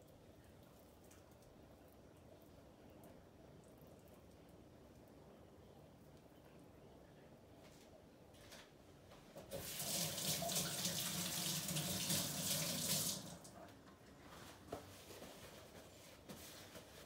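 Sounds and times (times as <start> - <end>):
faucet running into sink: 9.5 - 13.5
hands rinsed under water: 9.5 - 13.5.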